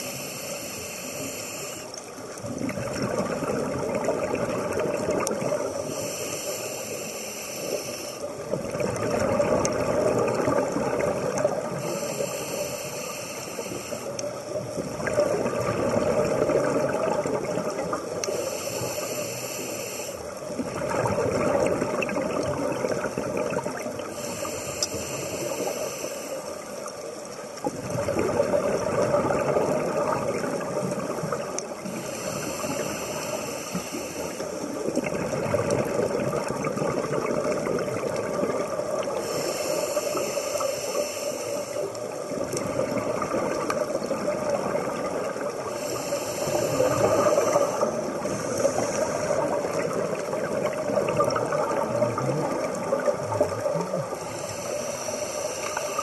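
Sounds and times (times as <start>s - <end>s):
hissing regulator inhalations: 0.0s - 2.2s, 5.8s - 8.6s, 11.4s - 14.5s, 18.2s - 20.5s, 24.0s - 27.2s, 30.6s - 35.0s, 39.0s - 42.3s, 45.0s - 51.3s, 52.4s - 56.0s
exhaled bubbles rushing: 2.4s - 5.9s, 8.4s - 11.8s, 14.6s - 18.1s, 20.5s - 24.1s, 27.6s - 32.0s, 34.6s - 39.2s, 42.2s - 45.8s, 46.4s - 54.3s.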